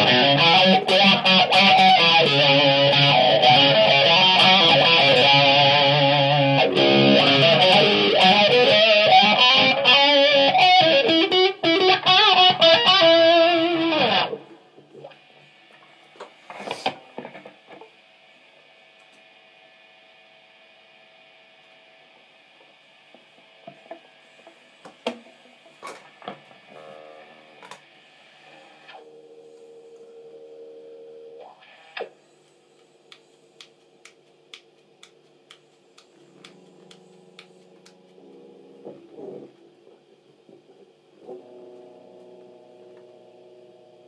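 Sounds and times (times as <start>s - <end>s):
soft electric guitar: 0.0s - 15.3s, 36.1s - 44.0s
light ticks: 32.8s - 38.1s.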